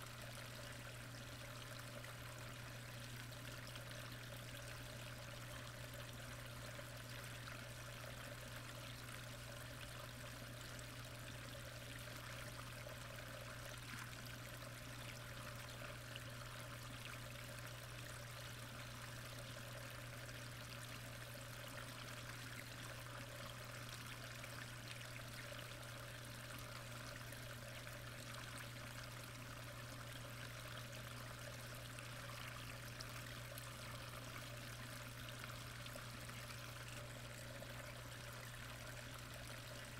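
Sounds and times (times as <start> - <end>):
constant low hum: 0.0 - 39.9.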